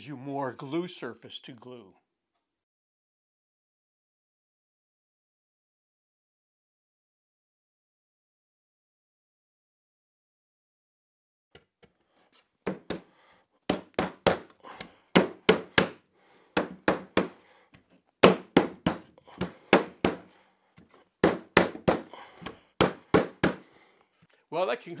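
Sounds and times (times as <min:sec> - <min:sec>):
wooden knocks on table frame: 0:12.7 - 0:13.0, 0:15.2 - 0:16.0, 0:16.6 - 0:17.4, 0:18.2 - 0:20.3, 0:21.2 - 0:23.6.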